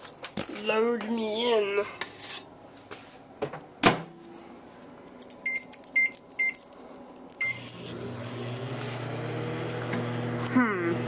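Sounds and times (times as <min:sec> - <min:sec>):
microwave oven humming: 0:03.7 - 0:11.0.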